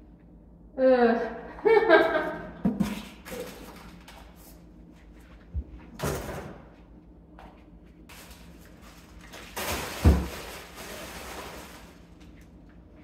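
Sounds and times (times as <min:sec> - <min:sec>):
plastic bags rustling: 0:08.1 - 0:12.6.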